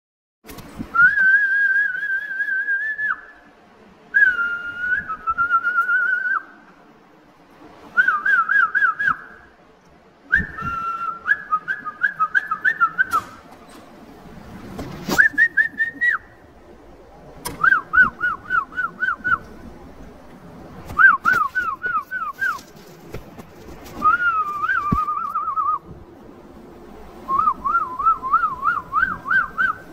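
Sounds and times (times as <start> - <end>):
person whistling: 0.9 - 3.2, 10.3 - 13.3, 15.1 - 16.3, 24.0 - 25.8, 27.3 - 29.9.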